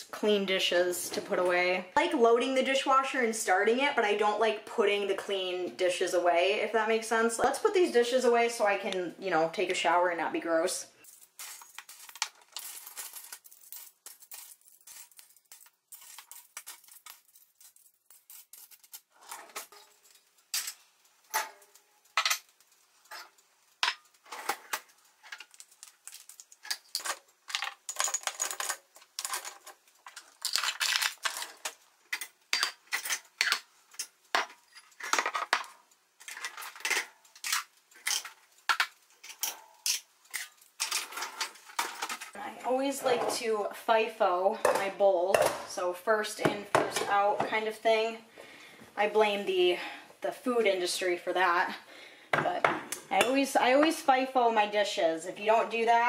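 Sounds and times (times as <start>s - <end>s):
cutlery clattering into metal drawer: 34.9s - 42.3s.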